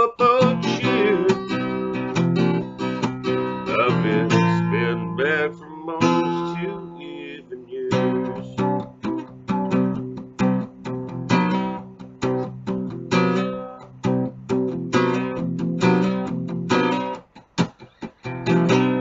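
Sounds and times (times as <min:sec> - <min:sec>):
person singing: 0:00.0 - 0:02.2, 0:03.4 - 0:08.9
acoustic guitar strumming: 0:00.0 - 0:19.0.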